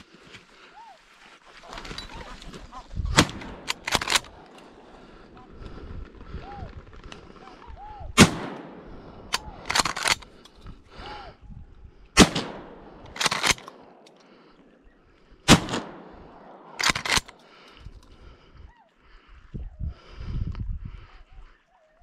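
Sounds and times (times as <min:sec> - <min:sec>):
shotgun shots: 0:03.1 - 0:04.4, 0:08.2 - 0:10.2, 0:12.2 - 0:14.0, 0:15.5 - 0:17.3.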